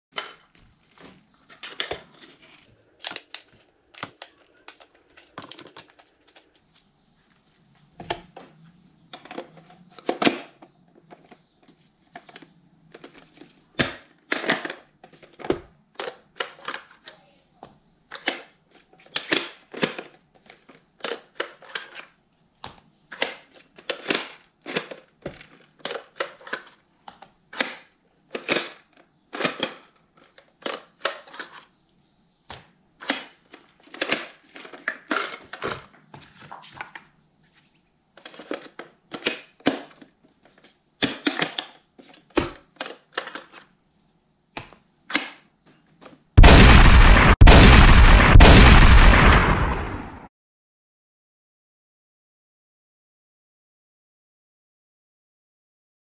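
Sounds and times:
plastic clicks and clacks: 0.1s - 6.6s, 8.0s - 31.7s, 32.4s - 37.2s, 38.2s - 43.8s.

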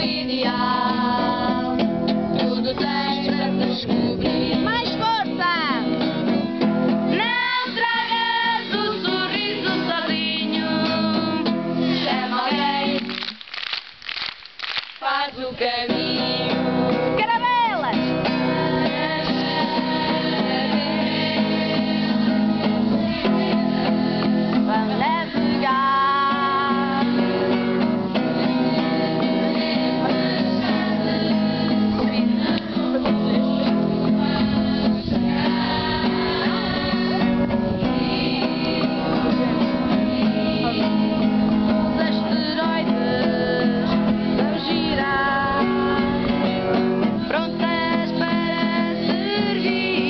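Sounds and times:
women singing: 0.0s - 5.9s, 7.1s - 13.2s, 15.0s - 50.0s
strummed acoustic guitar: 0.0s - 13.1s, 15.0s - 50.0s.

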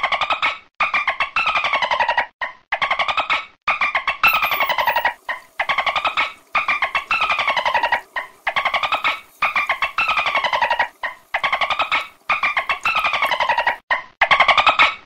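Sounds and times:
dolphin clicks and squawking calls: 4.2s - 13.8s.

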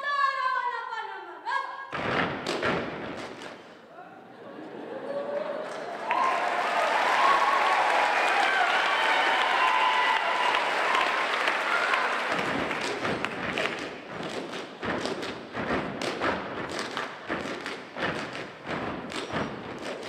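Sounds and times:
rubber boots slapping and stomping: 1.9s - 3.6s, 12.3s - 20.0s
applause: 5.3s - 15.3s.

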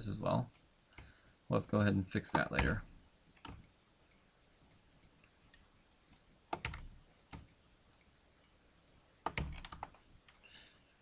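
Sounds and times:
keyboard keys clicking: 2.3s - 5.1s, 6.1s - 10.0s.

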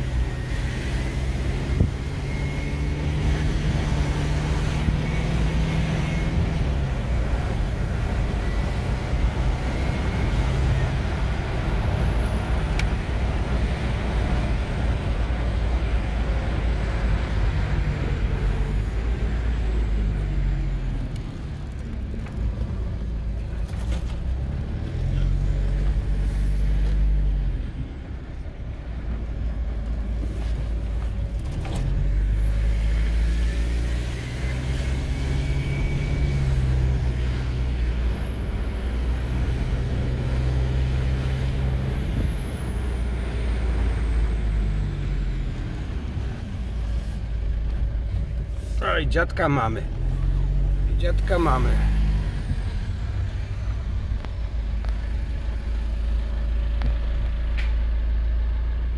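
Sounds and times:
car engine rising and falling: 0.0s - 58.9s
road noise inside car: 0.0s - 58.9s.

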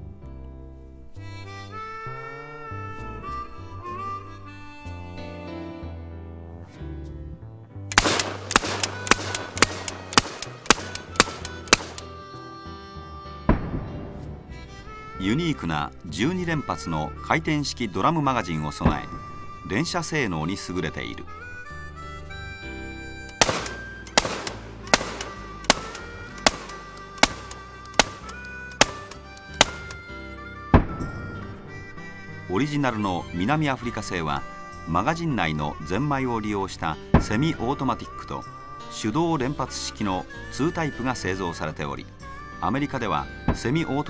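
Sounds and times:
background music: 0.0s - 44.0s
shotgun shots: 7.9s - 12.1s, 23.3s - 30.0s.

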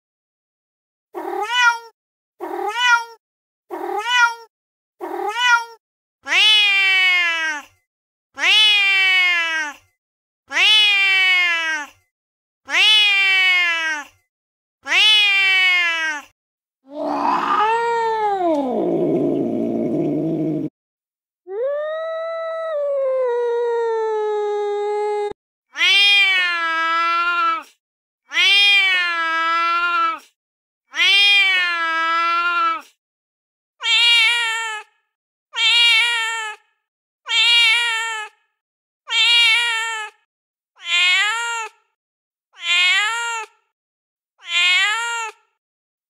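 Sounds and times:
cat meowing: 1.2s - 7.6s, 8.4s - 9.8s, 10.5s - 11.9s, 12.7s - 14.1s, 14.8s - 16.3s, 16.9s - 18.8s, 25.2s - 27.6s, 28.3s - 30.2s, 30.9s - 32.8s, 33.8s - 34.9s, 35.6s - 36.6s, 37.3s - 38.3s, 39.1s - 40.2s, 40.8s - 41.8s, 42.6s - 43.6s, 44.4s - 45.4s
cat yowling: 1.2s - 7.6s, 8.4s - 9.8s, 10.5s - 11.9s, 12.7s - 14.1s, 14.8s - 16.3s, 16.9s - 20.7s, 21.5s - 27.6s, 28.3s - 30.2s, 30.9s - 32.8s, 33.8s - 34.9s, 35.6s - 36.6s, 37.3s - 38.3s, 39.1s - 40.2s, 40.8s - 41.8s, 42.6s - 43.6s, 44.4s - 45.4s.

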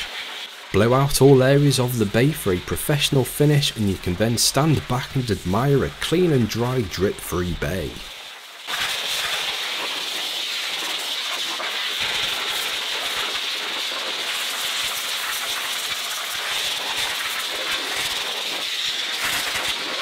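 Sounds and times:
air blower hissing: 0.0s - 20.0s.

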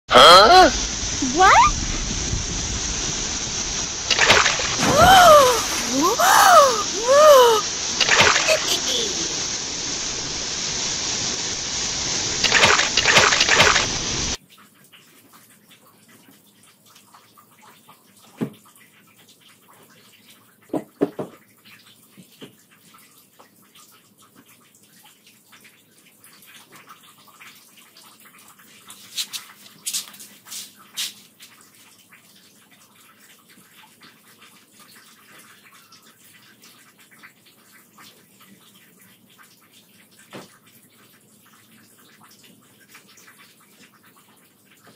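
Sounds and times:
water swirling in a whirlpool: 0.4s - 14.4s.

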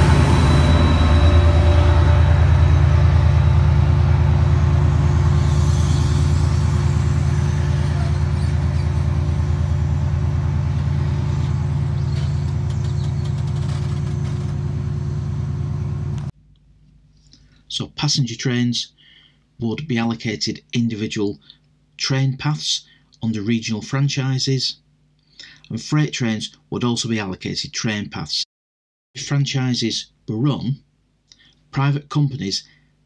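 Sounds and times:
diesel locomotive engine running: 0.0s - 16.3s.

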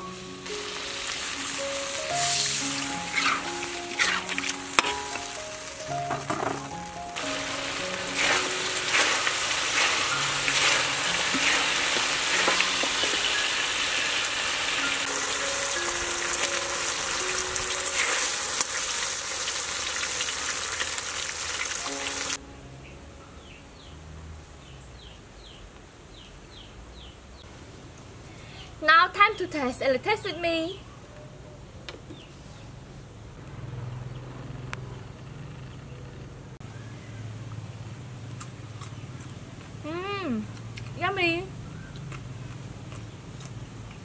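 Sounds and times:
chicken sizzling in a wok: 0.0s - 22.4s
metal spatula scraping pan: 3.0s - 5.0s, 8.1s - 12.9s.

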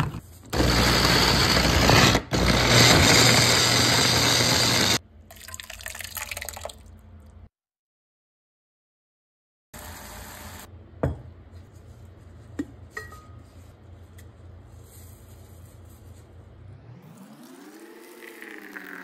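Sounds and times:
water pouring into glass teapot: 5.3s - 6.9s, 18.0s - 19.0s.

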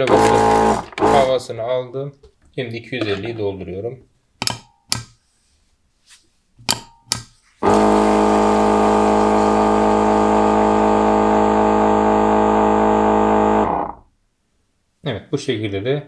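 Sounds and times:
pump humming: 0.0s - 1.3s, 7.6s - 14.0s.

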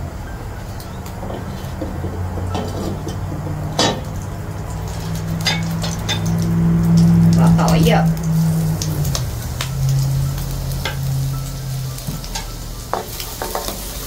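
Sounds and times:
steady low hum: 0.0s - 12.4s
shrimp frying in oil: 0.7s - 14.0s
utensil scraping a pan: 1.2s - 4.2s.

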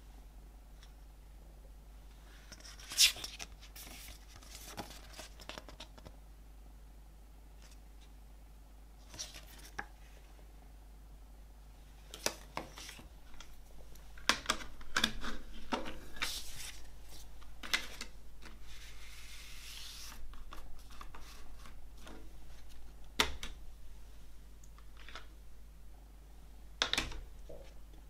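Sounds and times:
paper booklet rustling: 2.6s - 6.1s, 12.1s - 13.6s, 14.4s - 22.9s.

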